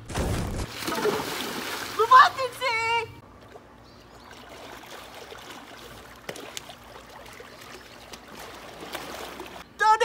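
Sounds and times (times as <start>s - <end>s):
short sharp splashes: 0.1s - 2.4s, 4.3s - 9.6s
pool water sloshing: 0.6s - 9.7s.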